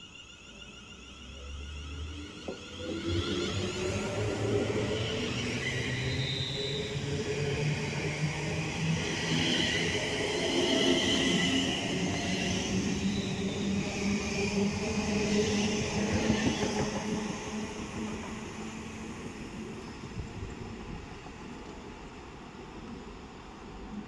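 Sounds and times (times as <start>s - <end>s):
electric train motors whining: 0.0s - 18.6s.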